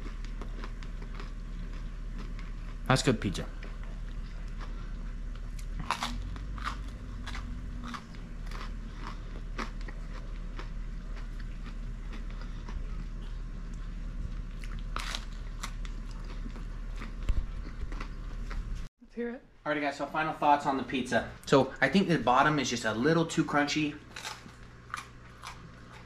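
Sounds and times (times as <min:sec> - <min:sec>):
crunching pizza crust: 0:00.0 - 0:18.9
steady low hum: 0:00.0 - 0:26.0.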